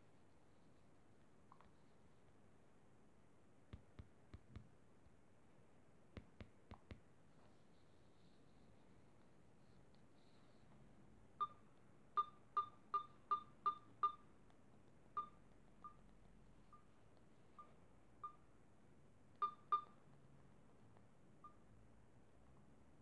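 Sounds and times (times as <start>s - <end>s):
short electronic beeps: 12.2s - 14.2s.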